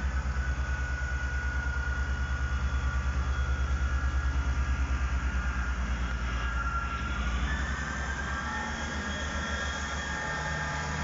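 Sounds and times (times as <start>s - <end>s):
thin whine: 0.0s - 11.0s
train diesel engine throbbing: 0.0s - 11.0s.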